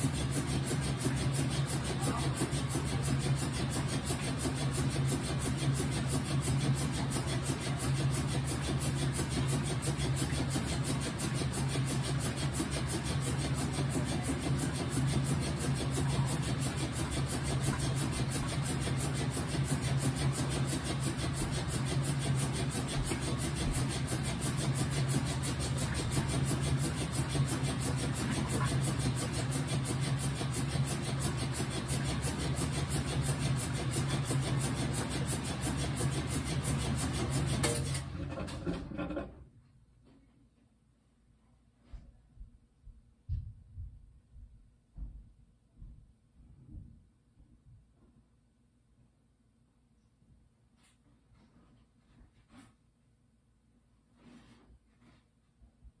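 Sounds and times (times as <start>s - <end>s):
washing machine motor hum: 0.0s - 39.6s.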